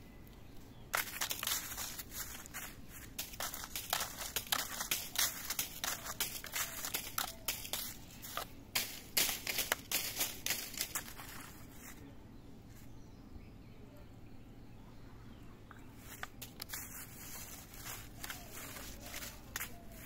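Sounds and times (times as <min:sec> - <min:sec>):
crinkling and rustling: 0:00.4 - 0:12.1, 0:15.9 - 0:20.0.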